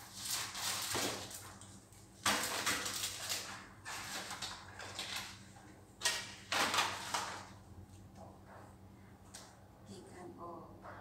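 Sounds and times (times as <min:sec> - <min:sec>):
packages rustling: 0:00.0 - 0:07.6.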